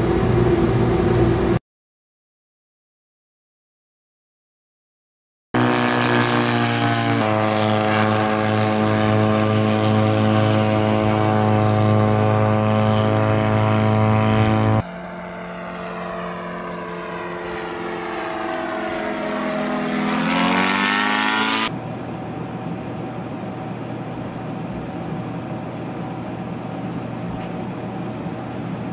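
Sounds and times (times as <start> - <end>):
drone piston engine and propeller: 0.0 - 1.6, 5.6 - 28.9
dull steady noise: 21.7 - 28.9.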